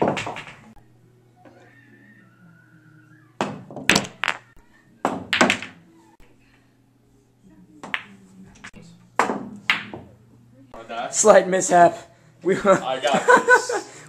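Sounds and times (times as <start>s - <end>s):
pool balls knocking together: 0.0s - 0.8s, 3.4s - 5.8s, 9.2s - 10.1s.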